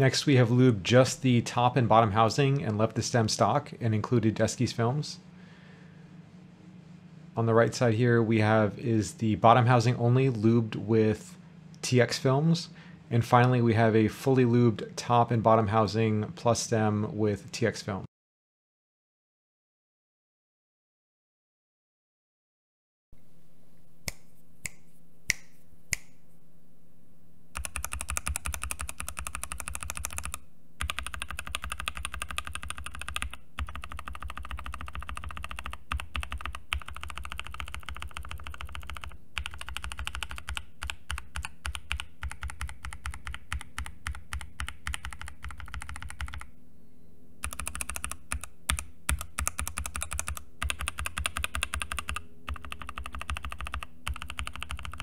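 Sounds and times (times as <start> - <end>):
typing on mechanical keyboard: 27.6 - 46.5, 47.4 - 55.0.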